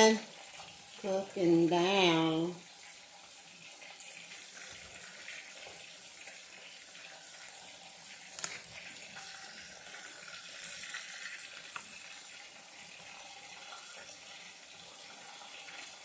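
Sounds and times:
shrimp deep-frying in oil: 0:00.0 - 0:16.0.

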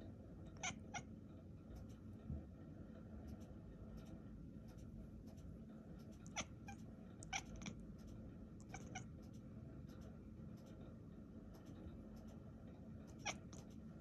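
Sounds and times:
low steady hum: 0:00.0 - 0:14.0
cat chirping: 0:00.6 - 0:01.0, 0:06.3 - 0:07.7, 0:08.6 - 0:09.1, 0:13.2 - 0:13.7.

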